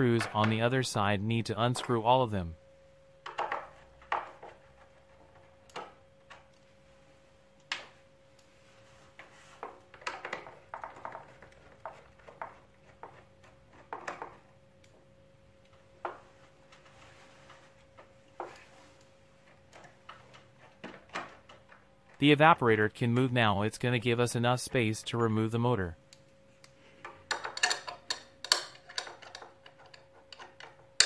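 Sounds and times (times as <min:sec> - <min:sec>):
metal and plastic parts clicking: 0:27.0 - 0:31.0.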